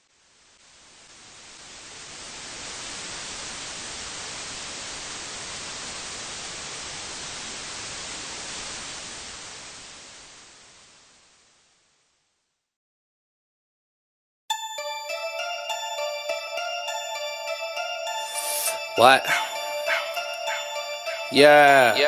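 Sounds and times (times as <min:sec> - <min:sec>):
television static hiss: 0:00.0 - 0:12.7, 0:18.3 - 0:22.0.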